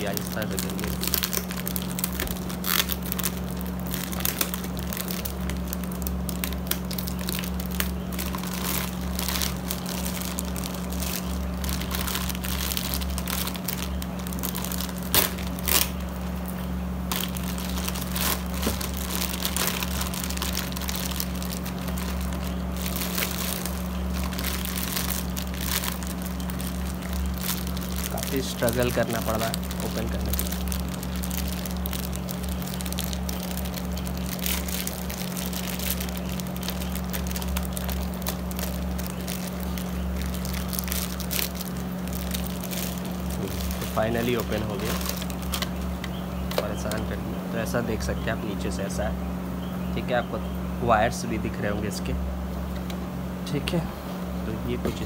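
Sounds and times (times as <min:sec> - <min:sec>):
plastic bag crinkling: 0:00.0 - 0:48.8
low hum: 0:00.0 - 0:55.0.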